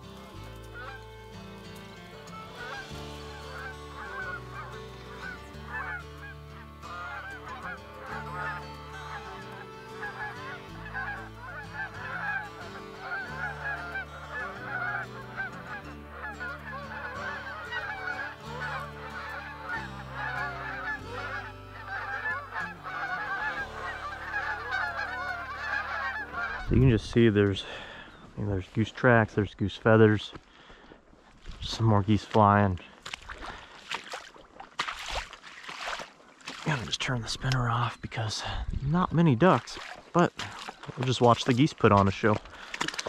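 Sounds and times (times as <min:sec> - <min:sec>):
geese honking in flight: 0:00.0 - 0:26.9.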